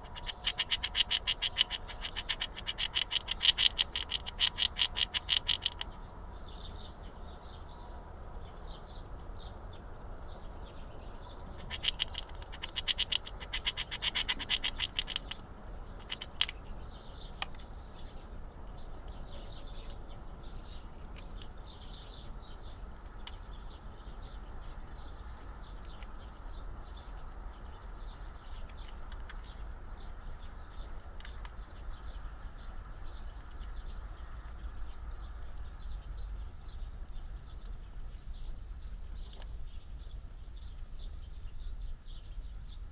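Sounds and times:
squirrel gnawing nut shell: 0.0 - 6.0, 11.4 - 17.6.

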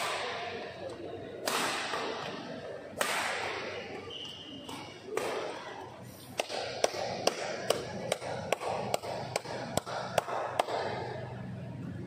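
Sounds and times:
murmur of voices: 0.0 - 12.0
hand claps: 6.4 - 11.1.

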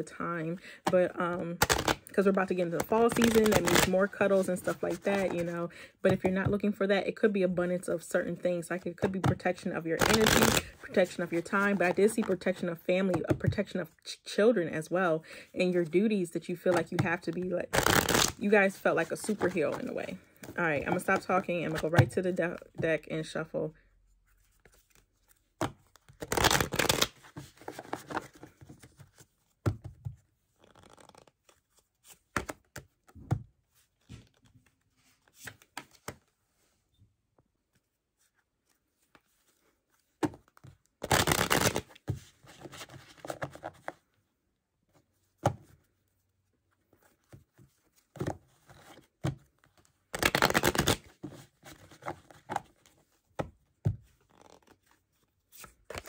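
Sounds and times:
cards riffle-shuffled: 1.6 - 2.0, 2.8 - 3.9, 10.0 - 10.8, 17.7 - 18.4, 24.4 - 29.1, 30.6 - 32.8, 41.0 - 44.0, 50.1 - 52.6, 54.3 - 54.8
quiet card shuffling and handling: 24.1 - 26.2, 26.9 - 36.8, 37.4 - 40.9.

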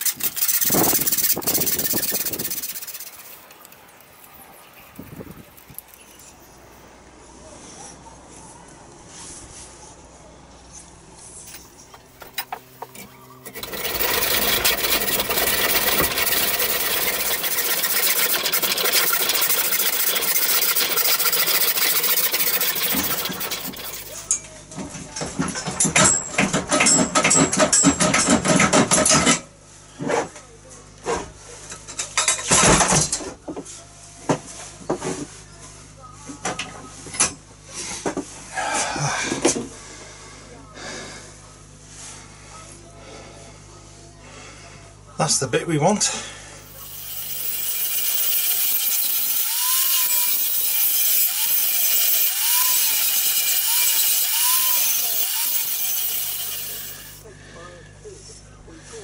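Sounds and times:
angle grinder grinding steel: 0.0 - 3.5, 12.3 - 24.3, 46.7 - 57.2
bicycle frame clattering and knocking: 12.2 - 24.3.

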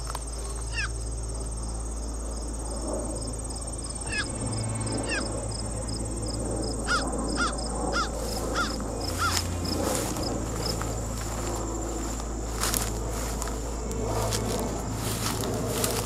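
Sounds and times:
insects trilling: 0.0 - 16.0
ticking chirp: 3.6 - 16.0
bird downward-sweeping calls: 3.9 - 12.6.

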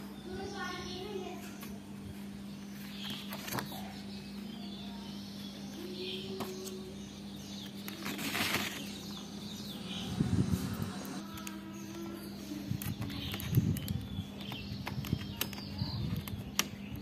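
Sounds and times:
steady low hum: 0.0 - 17.0
paper rustle: 2.8 - 4.0, 7.6 - 9.2.

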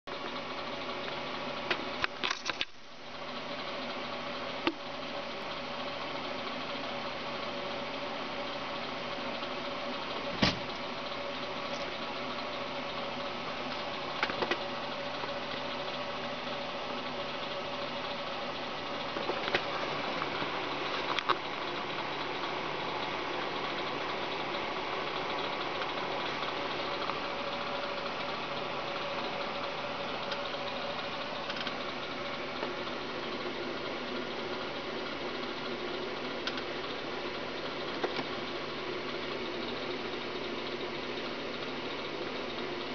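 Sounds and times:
steady mechanical hum: 0.1 - 42.9
sharp clicks: 36.4 - 36.7.

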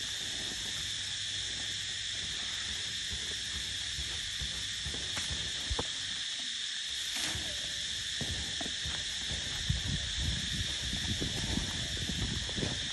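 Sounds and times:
insect chorus drone: 0.0 - 12.9
low thuds and rustles: 7.2 - 12.9.

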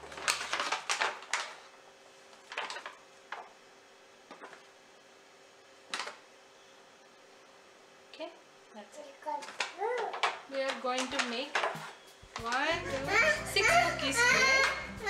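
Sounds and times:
plastic pouch crinkling: 0.0 - 1.7.

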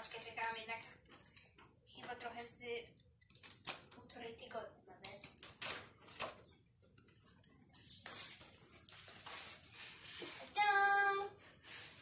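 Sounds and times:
cardboard parcel rustling and scraping: 7.8 - 10.6
girl singing a steady note: 10.5 - 11.4.

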